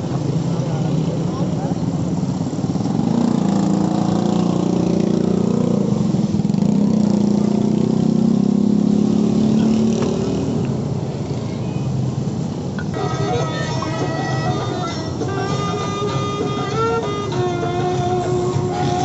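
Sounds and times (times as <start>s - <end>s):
engine running: 12.7s - 19.0s.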